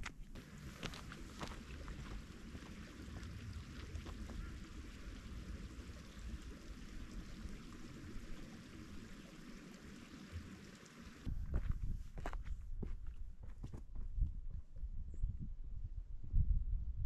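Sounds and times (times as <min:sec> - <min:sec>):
wind buffeting microphone: 0:00.4 - 0:09.5, 0:10.6 - 0:17.0
steady rushing hiss: 0:00.4 - 0:11.3.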